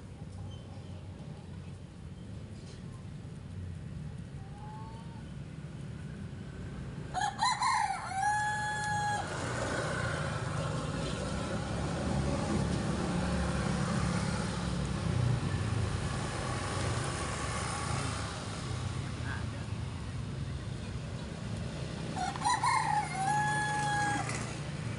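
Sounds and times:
rooster crowing: 7.1 - 9.6, 22.1 - 24.6.

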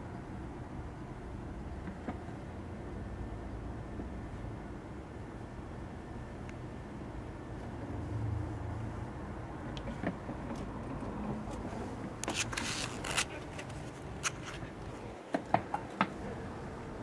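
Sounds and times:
steady low hum: 0.0 - 17.0
squirrels scrabbling on windowsill: 9.9 - 15.8.

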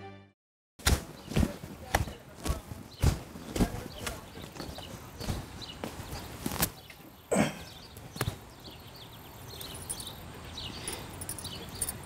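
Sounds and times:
birds chirping: 1.0 - 12.0.

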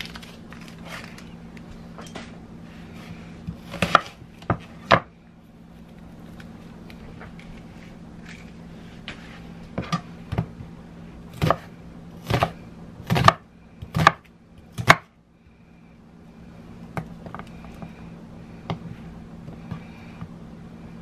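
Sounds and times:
knife chopping on cutting board: 3.5 - 5.1, 11.4 - 15.1.

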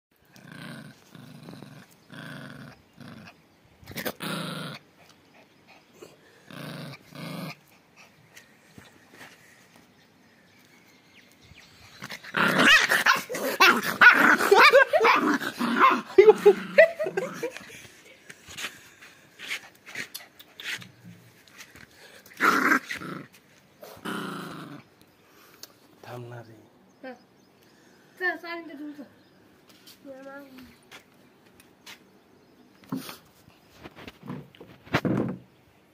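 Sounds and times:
puppy growling: 0.2 - 8.4, 12.0 - 17.8, 22.0 - 25.0.

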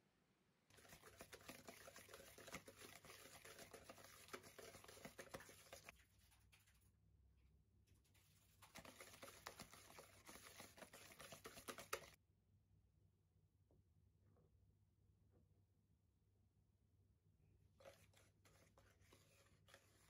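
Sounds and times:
wire whisk scraping bowl: 0.7 - 6.0, 8.6 - 12.2, 17.8 - 20.0.

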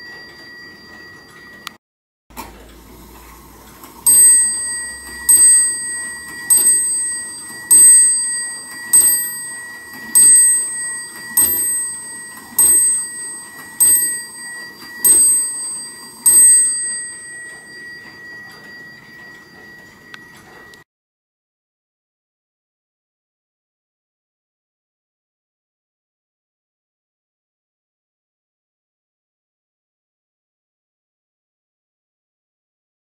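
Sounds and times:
wall clock striking: 4.0 - 20.8.

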